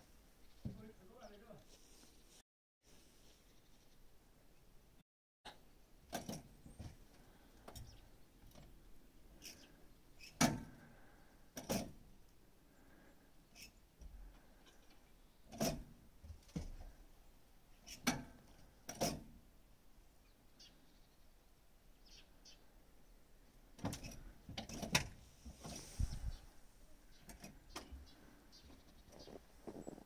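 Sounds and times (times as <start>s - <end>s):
knocks and clunks: 15.5s - 16.9s, 23.8s - 26.4s.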